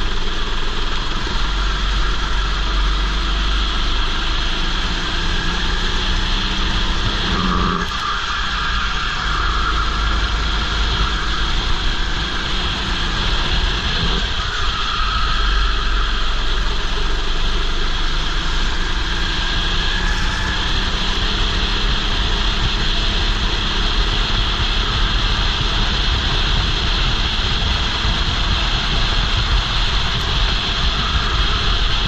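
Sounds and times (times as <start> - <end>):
go-kart engine racing: 0.0 - 32.0
wind rumble on microphone: 0.0 - 32.0.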